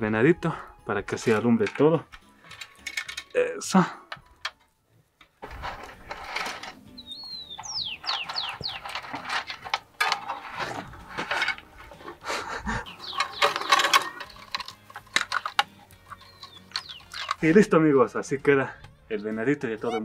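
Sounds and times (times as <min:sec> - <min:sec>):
light string rustling and scraping: 0:05.4 - 0:06.9, 0:08.0 - 0:12.4
bird chirping: 0:06.9 - 0:09.2, 0:12.6 - 0:14.3, 0:15.3 - 0:17.5.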